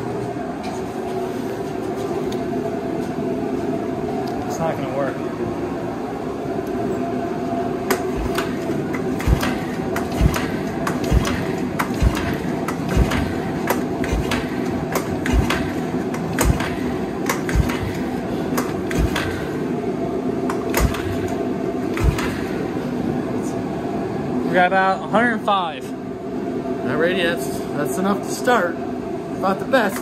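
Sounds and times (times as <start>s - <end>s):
space heater humming: 0.0s - 30.0s
recoil starter clicks and rattles: 7.9s - 19.4s, 20.5s - 22.5s
engine thumping being pulled over: 8.0s - 8.6s, 9.2s - 19.4s, 20.7s - 21.3s, 22.0s - 22.5s.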